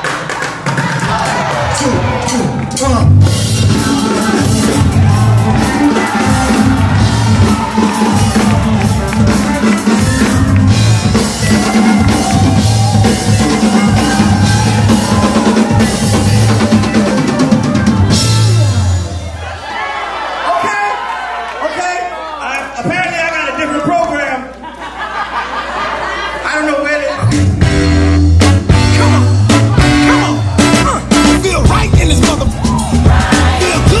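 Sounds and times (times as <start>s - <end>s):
driving drum kit: 0.0s - 19.4s, 27.3s - 34.0s
rock band playing: 0.0s - 19.6s, 27.1s - 34.0s
heavy repeating bass line: 1.5s - 19.2s, 27.2s - 34.0s.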